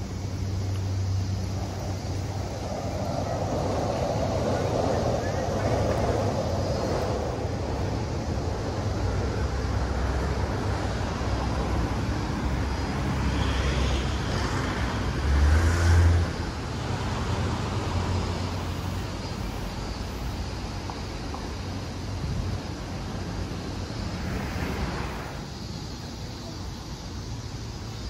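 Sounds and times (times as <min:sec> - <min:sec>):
low vehicle rumble: 0:00.0 - 0:19.2
road vehicles passing: 0:00.0 - 0:28.0.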